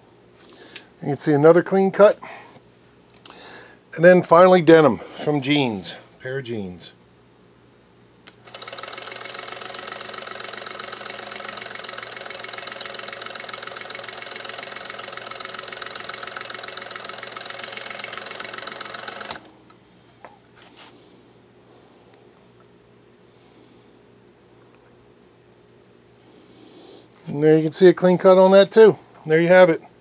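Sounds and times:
sewing machine rattling: 8.3s - 19.5s.

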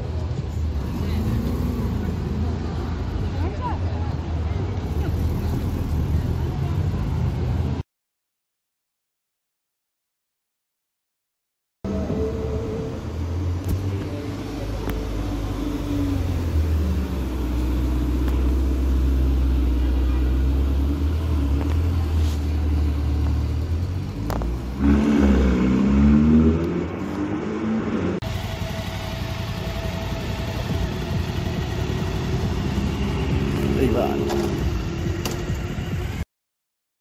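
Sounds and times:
car engine rumbling: 0.0s - 7.8s, 11.8s - 36.2s
car engine revving: 0.6s - 3.7s, 12.0s - 36.2s
motorcycle engine idling: 28.2s - 33.9s.

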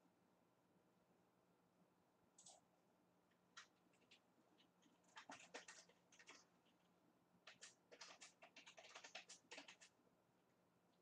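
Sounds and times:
faint steady hum: 0.0s - 11.0s
computer keyboard typing: 2.4s - 2.6s, 3.5s - 6.8s, 7.4s - 10.0s.

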